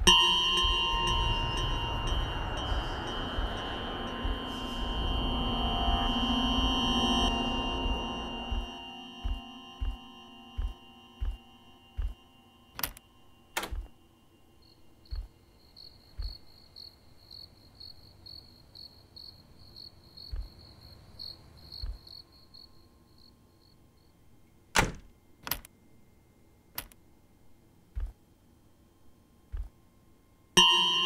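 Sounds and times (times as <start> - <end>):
soft low thuds: 0.0 - 11.4, 12.0 - 12.2, 13.6 - 13.9, 15.1 - 15.3, 16.1 - 16.5, 20.3 - 20.6, 21.8 - 22.1, 28.0 - 28.2, 29.5 - 29.8
high pulsed chirp: 0.0 - 16.4
sharp knocks: 13.6 - 13.9, 28.0 - 28.2.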